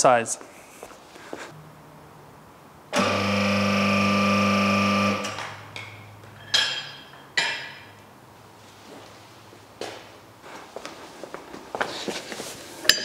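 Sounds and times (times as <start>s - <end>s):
hydraulic pump humming: 2.9s - 5.4s
metallic clanks with ringing: 5.9s - 7.9s.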